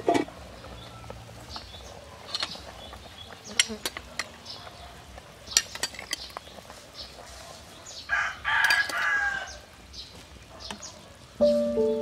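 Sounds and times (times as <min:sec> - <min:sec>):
rooster crowing: 0:08.1 - 0:09.6.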